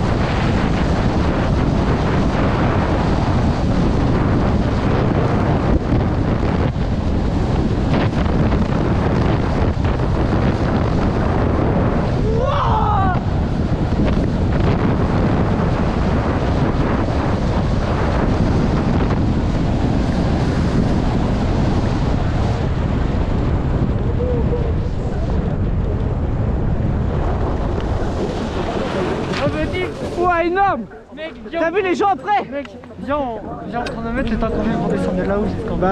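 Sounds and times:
wind buffeting microphone: 0.0 - 35.9
person shouting: 12.2 - 13.3
skis scraping on packed snow: 27.8 - 30.6.

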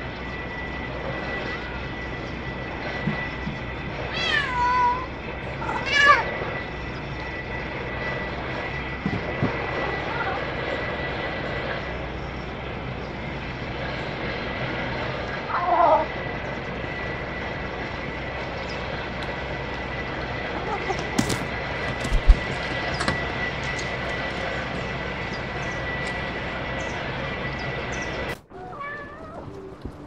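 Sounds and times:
cat meowing: 4.1 - 6.3, 28.5 - 29.8.

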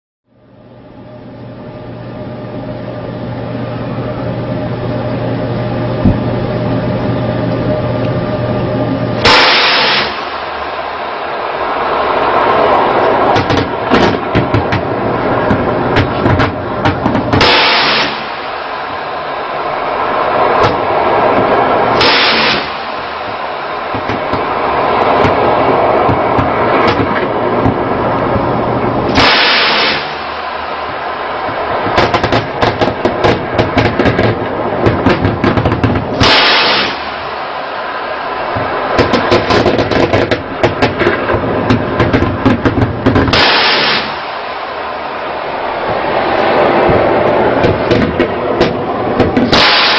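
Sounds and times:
steady rushing background: 0.3 - 49.9
loud blast: 4.6 - 49.9
sharp gunshots: 9.2 - 11.8, 13.2 - 19.1, 20.6 - 27.8, 29.1 - 37.8, 38.4 - 45.1, 46.8 - 49.9
machine gun bursts: 49.5 - 49.9.

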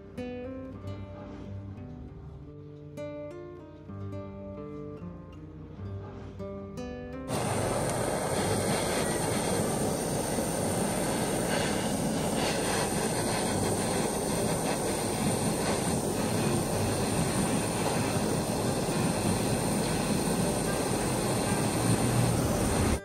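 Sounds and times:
gas torch flame hissing: 7.3 - 23.0.

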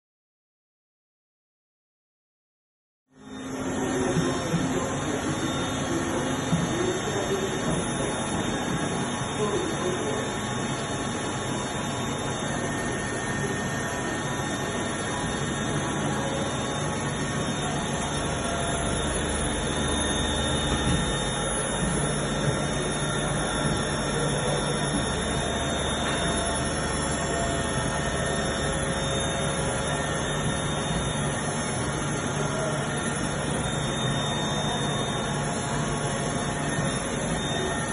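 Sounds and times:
workshop machinery hum and hiss: 3.1 - 37.9
faint steady tones: 11.6 - 37.9.

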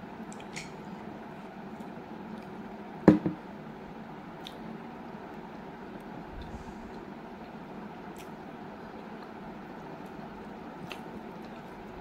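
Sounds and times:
ceramic bowl knocking: 3.1 - 3.4.

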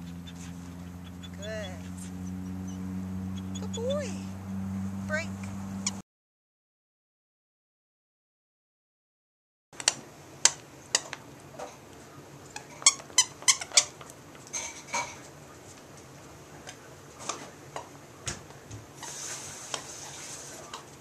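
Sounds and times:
squeaky toy squeaks: 12.6 - 13.9.

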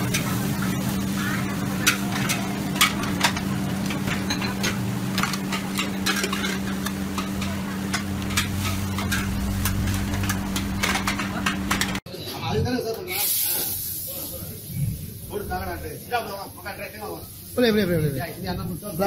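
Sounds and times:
ladle scraping and clanking on wok: 0.0 - 12.0
steady low hum: 0.0 - 12.0
food sizzling: 0.0 - 19.0.

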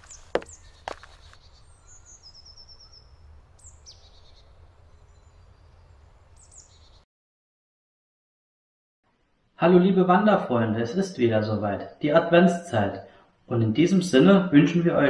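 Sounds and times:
birds singing: 0.0 - 7.0.

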